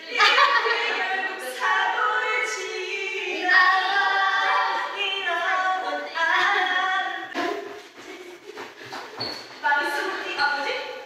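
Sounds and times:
women singing together: 0:00.0 - 0:07.8.

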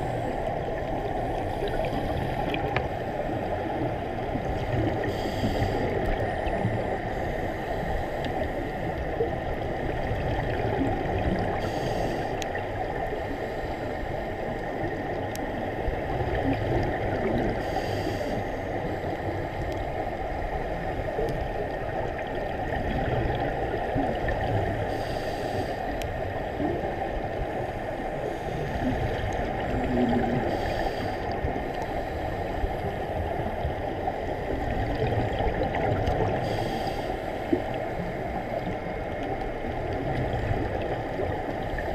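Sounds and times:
muffled rush of water: 0:00.0 - 0:41.9
regulator bubbles gurgling: 0:00.0 - 0:41.9
hiss of bubbles: 0:04.5 - 0:08.6, 0:10.0 - 0:14.0, 0:22.8 - 0:25.9, 0:34.8 - 0:38.8.

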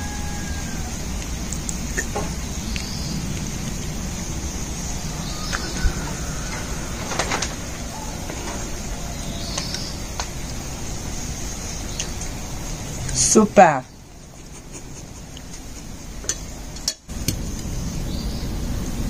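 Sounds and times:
bird chirps: 0:00.0 - 0:13.2
outdoor background rumble: 0:00.0 - 0:19.0.

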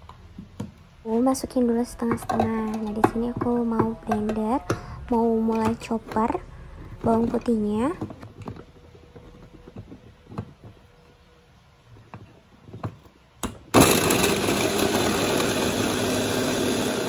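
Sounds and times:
food chopper motor chopping garlic: 0:13.7 - 0:17.0.

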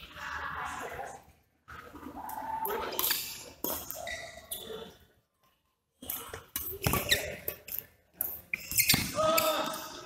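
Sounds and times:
shoes squeaking on court floor: 0:02.9 - 0:05.1, 0:06.0 - 0:09.2.

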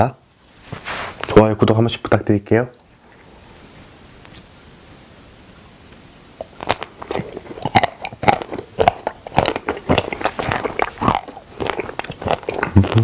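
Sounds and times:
wet mouth clicks: 0:05.9 - 0:13.0
biting and chewing ice cream: 0:06.4 - 0:13.0.

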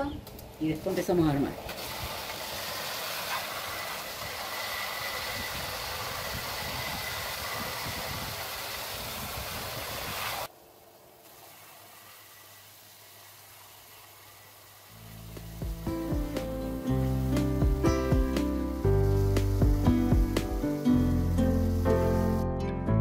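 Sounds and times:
belt sander grinding wood: 0:01.7 - 0:10.5.

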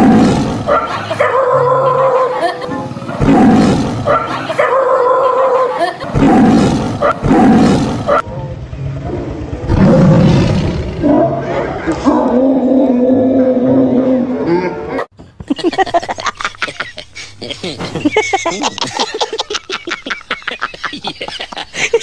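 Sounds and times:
dog barking: 0:00.7 - 0:02.4, 0:04.1 - 0:05.8, 0:07.0 - 0:07.3, 0:08.0 - 0:08.3
lion roars: 0:03.1 - 0:04.2, 0:06.1 - 0:08.2, 0:09.0 - 0:15.0.

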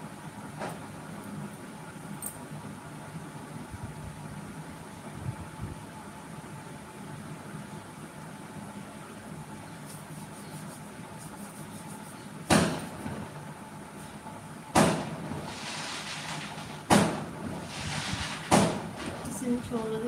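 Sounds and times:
steady low hum: 0:00.0 - 0:20.0
loud sharp bangs: 0:14.7 - 0:19.3.

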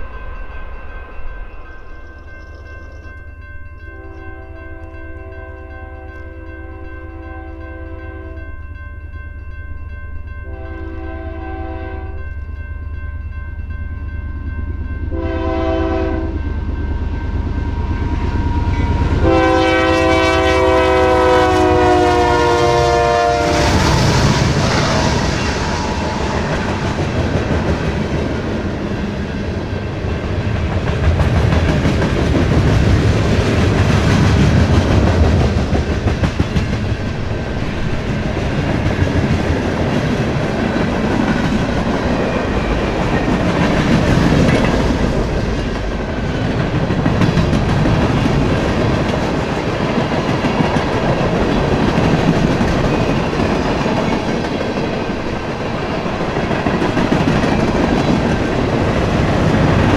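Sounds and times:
freight train rumble: 0:00.0 - 0:59.9
locomotive air horn: 0:10.5 - 0:12.2, 0:15.1 - 0:16.4, 0:19.1 - 0:26.4.

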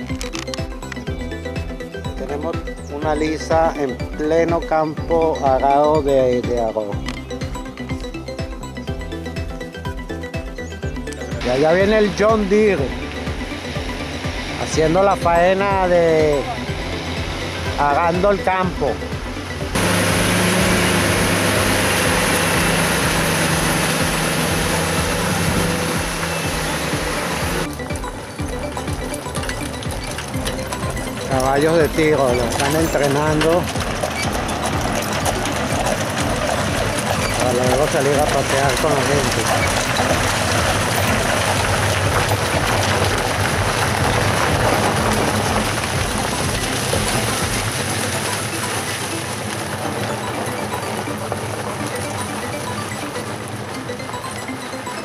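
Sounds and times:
tractor engine running: 0:00.0 - 0:55.0
tyres scraping over dirt: 0:11.4 - 0:53.8.

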